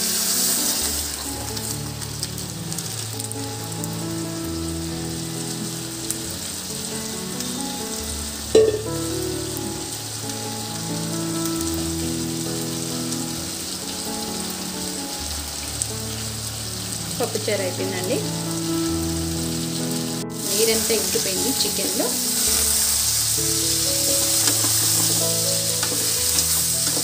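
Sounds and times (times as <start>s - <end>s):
background music: 0.0s - 27.0s
oil sizzling in a pot: 0.0s - 27.0s
single clunk: 8.6s - 9.0s.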